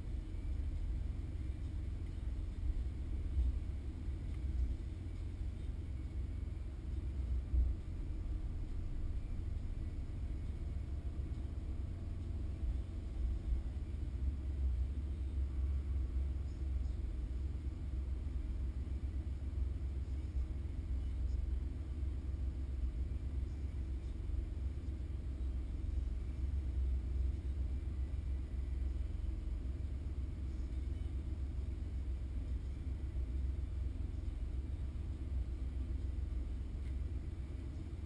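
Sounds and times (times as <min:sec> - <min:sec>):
car engine idling: 0:00.0 - 0:38.0.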